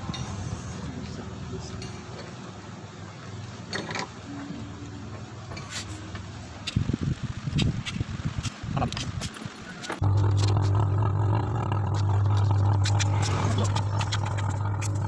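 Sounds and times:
low steady hum: 10.0s - 15.0s.

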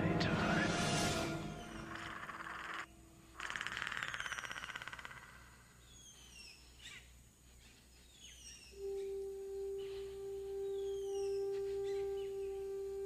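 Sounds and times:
insect-like buzz: 0.8s - 5.6s.

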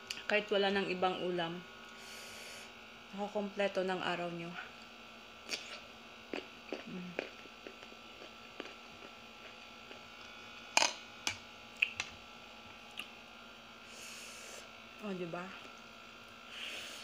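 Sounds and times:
steady electrical hum: 0.0s - 17.0s
chewing: 5.5s - 10.1s.

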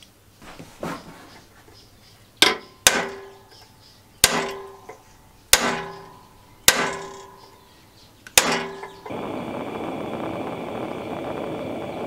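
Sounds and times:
hammer striking steel punch: 2.4s - 3.4s, 4.2s - 4.9s, 5.5s - 7.5s, 8.4s - 9.0s.

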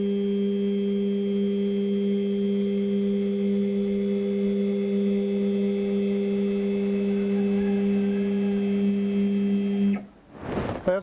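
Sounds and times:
stepper motor whining: 2.6s - 10.1s.

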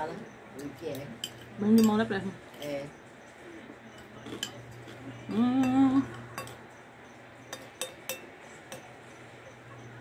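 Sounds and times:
metal spoon clinking bowl: 0.6s - 2.9s, 3.9s - 9.2s
person humming: 5.2s - 6.2s.

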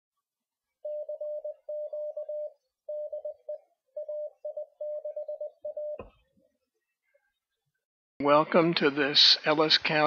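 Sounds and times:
morse code beeps: 0.8s - 6.1s.

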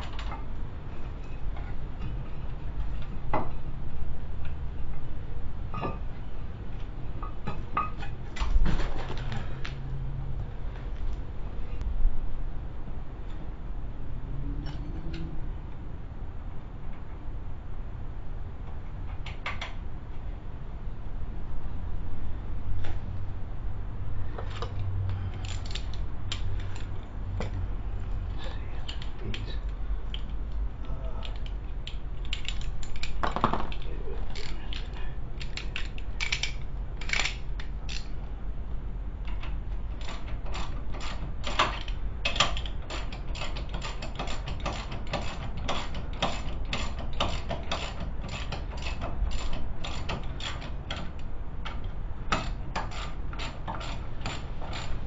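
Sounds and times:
ratchet wrench clicking: 35.4s - 38.1s, 40.0s - 51.2s.

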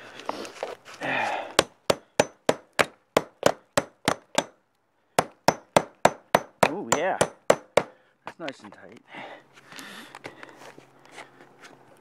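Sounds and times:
hammer striking nail into wood: 1.6s - 4.6s, 5.2s - 8.0s.

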